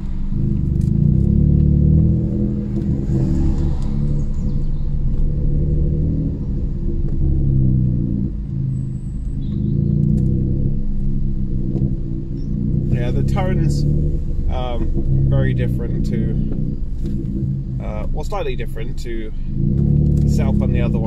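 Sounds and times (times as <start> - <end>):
car engine and exhaust drone: 0.0 - 21.0.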